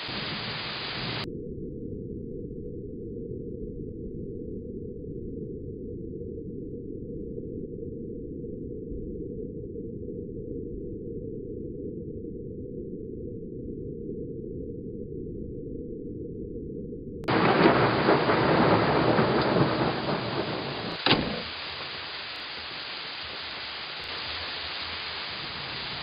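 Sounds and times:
muffled thunderstorm rush: 0.0 - 1.3, 17.2 - 26.0
rain and thunder: 0.0 - 1.3, 17.3 - 26.0.

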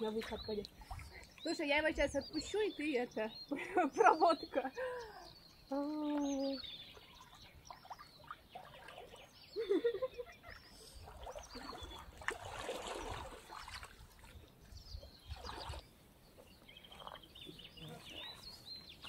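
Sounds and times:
small birds chirping: 0.0 - 19.0
river water splashing: 6.9 - 9.6, 10.4 - 16.0, 16.8 - 19.0.

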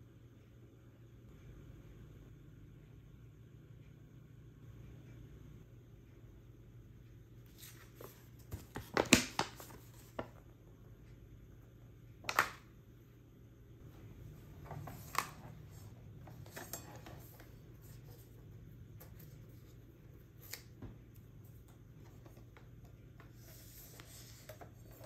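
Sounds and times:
paper rustling: 7.5 - 10.4.

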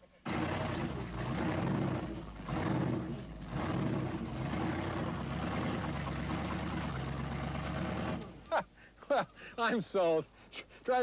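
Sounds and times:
supercharged truck engine running: 0.2 - 8.5.

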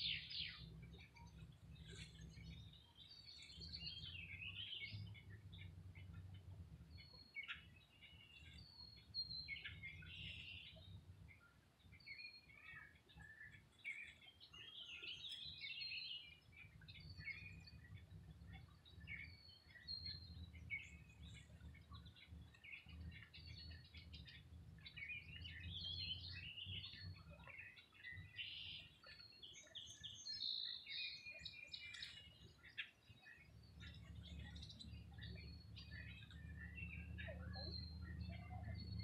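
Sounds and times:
low steady rumble: 0.0 - 7.3
songbirds singing and chirping: 0.0 - 39.0.

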